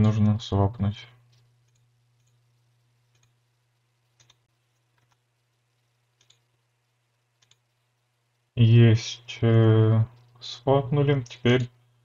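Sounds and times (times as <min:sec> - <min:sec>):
low steady hum: 0:00.0 - 0:12.0
computer mouse clicks: 0:01.3 - 0:03.4, 0:04.1 - 0:05.2, 0:06.2 - 0:06.5, 0:07.4 - 0:07.7.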